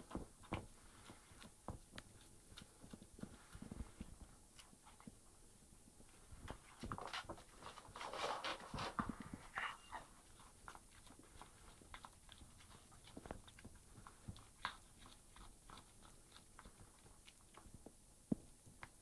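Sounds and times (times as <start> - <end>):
cat chewing meat: 0.0 - 6.3, 10.1 - 19.0.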